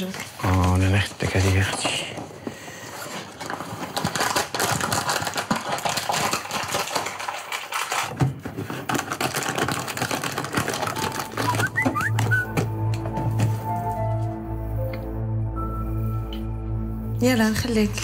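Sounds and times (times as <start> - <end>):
wrapper crinkling: 0.0 - 2.2, 2.9 - 13.8
music: 10.5 - 18.0.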